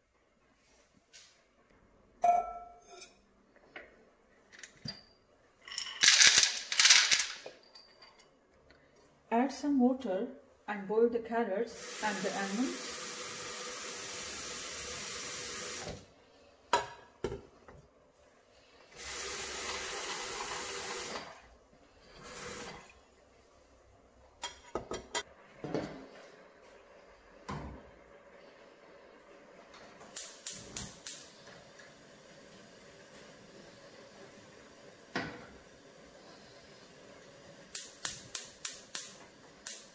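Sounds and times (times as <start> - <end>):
tap running water into pots: 11.8 - 16.1, 19.0 - 21.4
gas hob igniter clicks: 30.1 - 31.3, 37.7 - 39.9.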